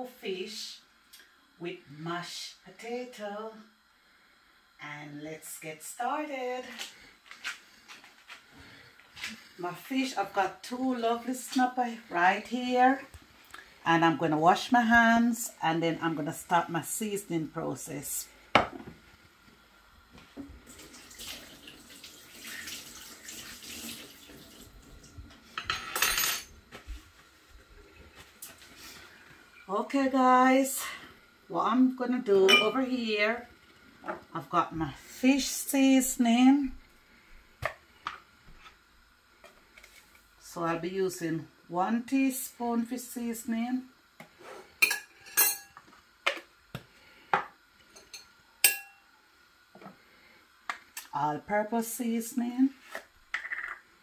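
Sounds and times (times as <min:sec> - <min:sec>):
tap water running into sink: 0:20.6 - 0:25.3
teaspoon clinking against glass bowl: 0:48.0 - 0:49.0.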